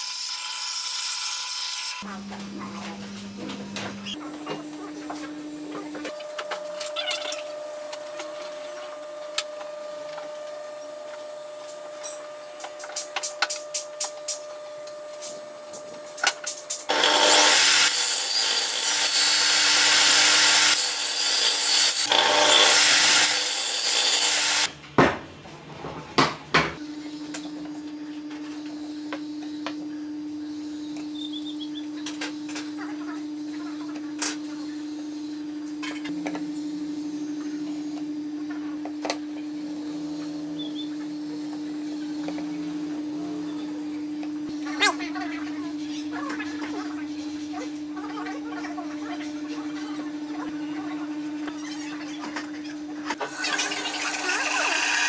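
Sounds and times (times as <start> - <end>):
table saw cutting board: 16.2 - 24.7, 53.1 - 55.0.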